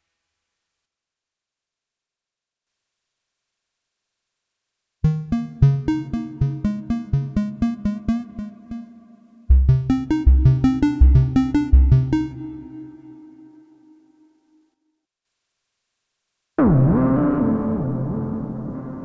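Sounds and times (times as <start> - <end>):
synthesizer plucked notes: 5.0 - 14.1
deep synth bass notes: 5.1 - 12.8.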